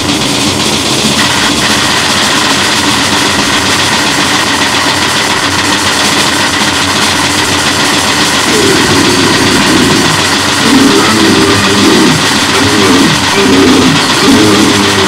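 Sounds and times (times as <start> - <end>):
harsh distorted noise music: 0.0 - 15.0.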